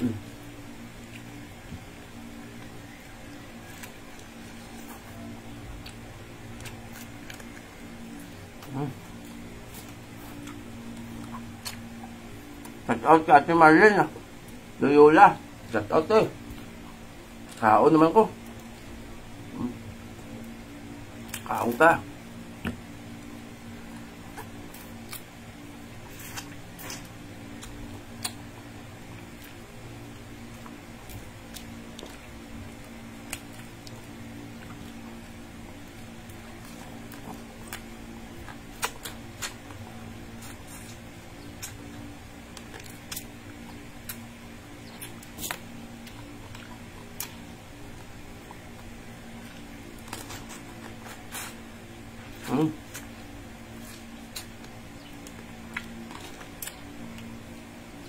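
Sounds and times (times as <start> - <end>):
sucking and chewing: 0.0 - 13.0, 16.4 - 21.9, 23.1 - 58.0
steady low hum: 0.0 - 58.0.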